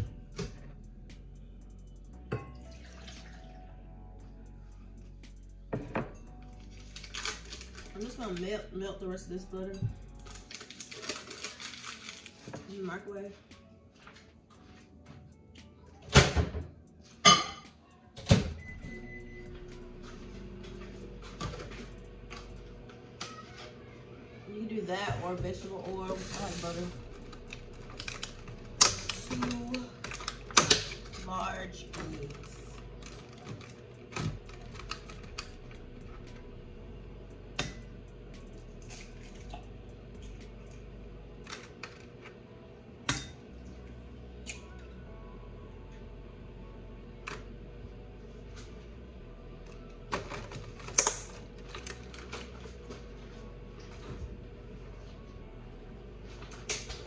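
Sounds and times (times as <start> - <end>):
microwave humming: 15.6 - 57.0
microwave beep: 18.4 - 20.6.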